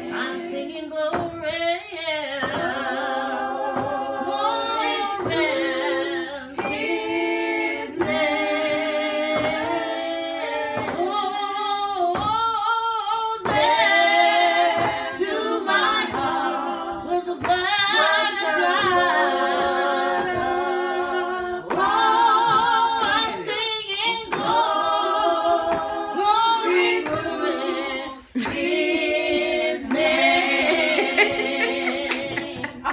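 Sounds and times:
voices singing in harmony: 0.0 - 32.9.

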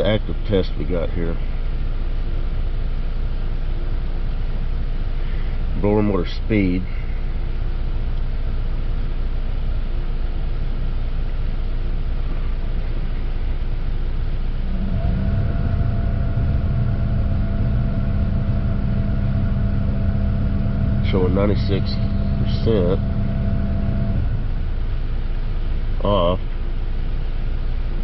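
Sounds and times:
blower motor whine and hum: 0.0 - 28.0
car engine hum: 6.8 - 28.0
air rushing: 14.6 - 26.0.

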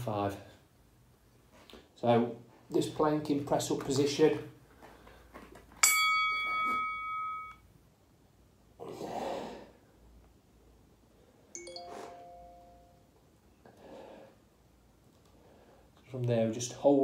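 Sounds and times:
electronic chimes: 11.6 - 13.0.

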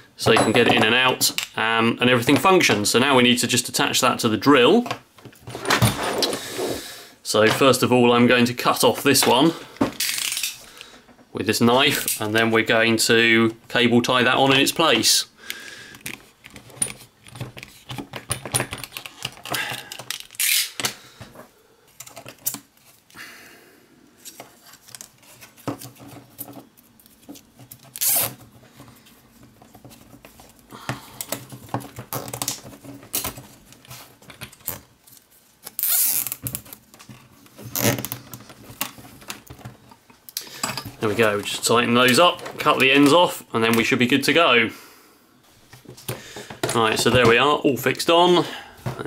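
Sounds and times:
clicks and rustles: 15.9 - 23.2
cable ties zipping: 19.6 - 20.8, 27.9 - 28.4, 35.6 - 36.7, 37.6 - 38.3.

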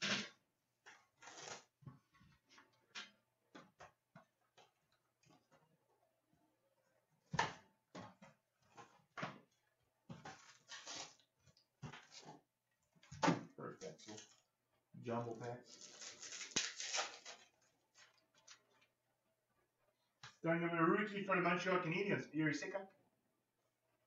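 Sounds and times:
cardboard packaging rustling: 0.9 - 1.8, 10.2 - 11.3, 15.6 - 18.6.

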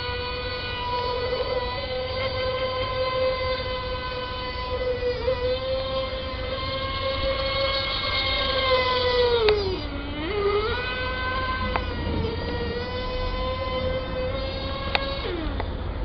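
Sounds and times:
small high-revving engine: 0.0 - 16.0.

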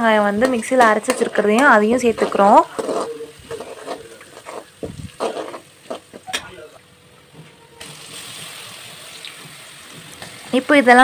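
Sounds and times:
garlic and spices frying in oil: 0.0 - 6.8, 7.8 - 11.0
spatula scraping a metal pan: 2.0 - 6.1.

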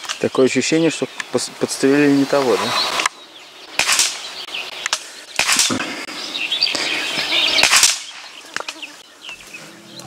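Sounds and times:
birds chirping faintly: 0.0 - 10.0
sharp gunshots: 3.7 - 6.1, 7.6 - 8.3.

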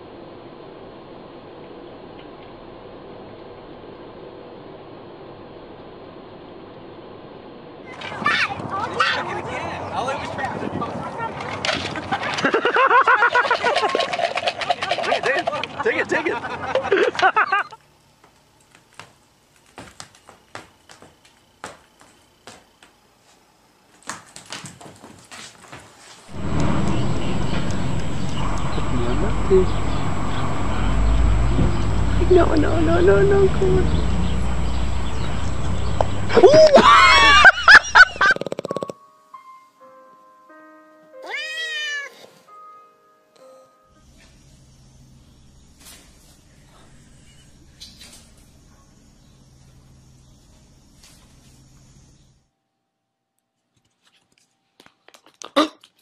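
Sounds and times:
dog footsteps on wooden floor: 18.2 - 26.3
cat meowing: 41.2 - 42.4
puppy squealing: 41.2 - 42.4.

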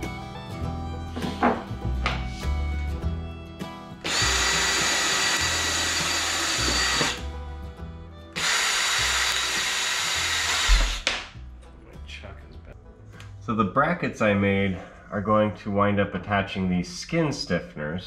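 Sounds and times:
cordless drill whining: 4.0 - 7.2, 8.4 - 11.1.

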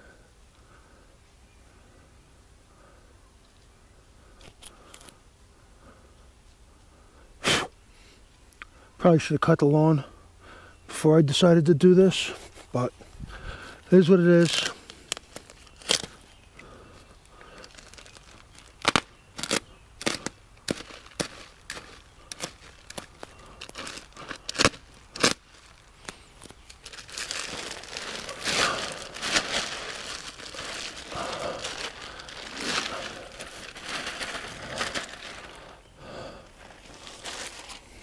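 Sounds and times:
plastic bag crinkling: 17.4 - 35.8, 36.5 - 38.0
mulch tipping out rustle: 26.7 - 35.6.

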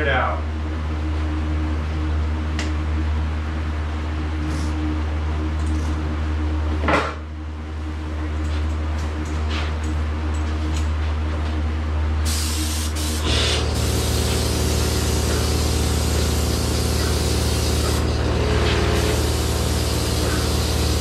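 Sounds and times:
machine hum: 0.0 - 21.0
spray gun hissing: 12.3 - 21.0.

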